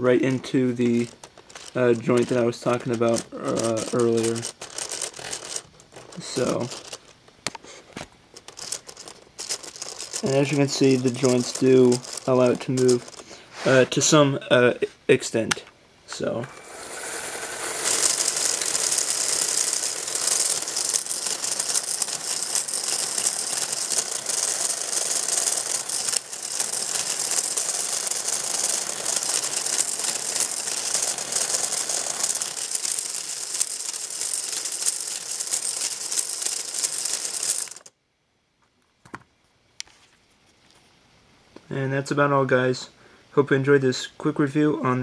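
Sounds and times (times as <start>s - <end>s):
toy gears rattling and whirring: 0.2s - 14.1s, 16.2s - 37.9s.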